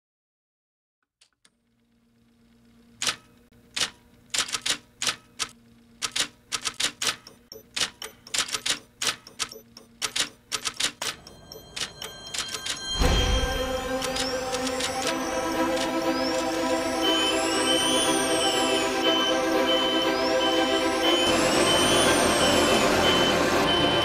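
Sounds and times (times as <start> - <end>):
typewriter keys typing: 3.0 - 16.0
music: 11.8 - 24.0.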